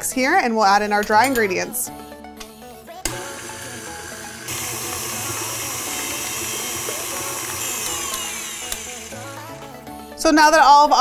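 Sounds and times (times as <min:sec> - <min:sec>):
stand mixer running: 0:03.1 - 0:09.5
mixer switch click: 0:07.6 - 0:08.9.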